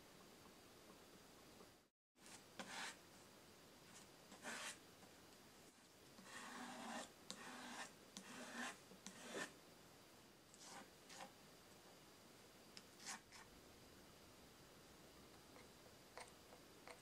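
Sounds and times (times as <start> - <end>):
wooden spatula scraping paste: 2.2 - 3.0, 3.9 - 4.8, 5.7 - 9.6, 10.5 - 11.4, 12.8 - 13.5.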